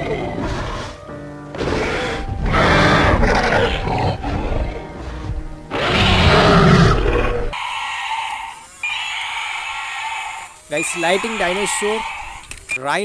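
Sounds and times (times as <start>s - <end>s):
dinosaurs roaring: 0.0s - 1.0s, 1.6s - 12.5s
background music: 0.0s - 7.6s.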